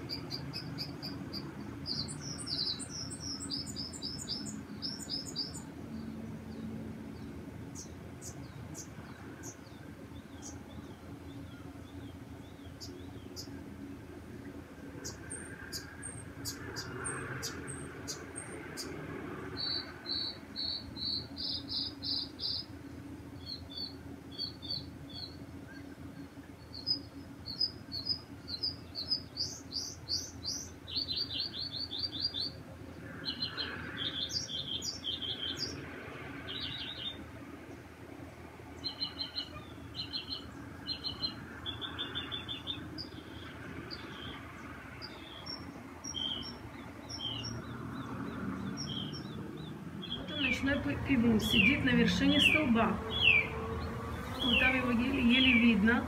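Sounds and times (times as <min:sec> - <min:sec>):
songbird chirps and trills: 0:00.0 - 0:56.0.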